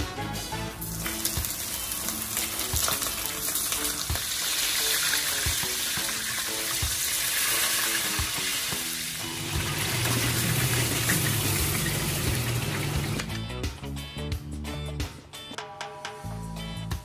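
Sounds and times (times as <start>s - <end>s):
fish sizzling in hot oil: 0.8s - 13.2s.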